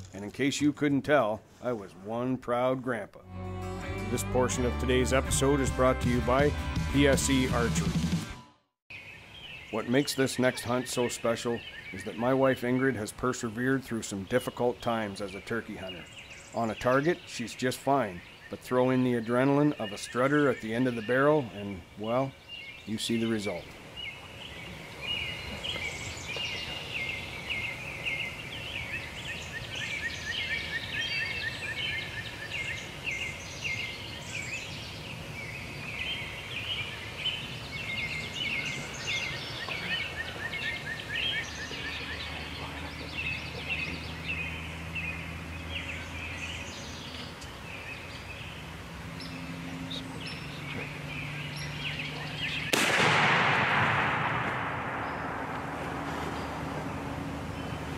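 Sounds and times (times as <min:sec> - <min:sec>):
songbirds chirping and singing: 0:03.7 - 0:08.0, 0:08.9 - 0:52.8
shotgun blast: 0:52.7 - 0:55.8.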